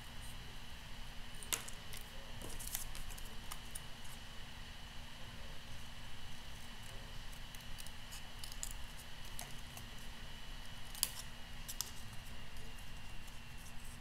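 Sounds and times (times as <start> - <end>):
scissors snipping cardstock: 10.9 - 12.1.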